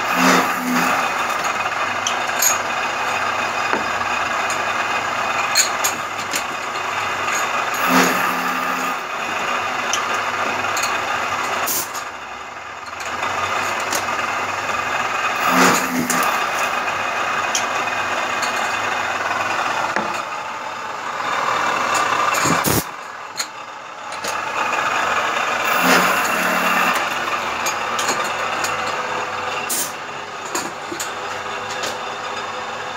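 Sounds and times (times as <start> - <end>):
milling machine machining metal: 0.0 - 1.2, 7.3 - 9.4, 15.3 - 16.8, 25.6 - 27.8.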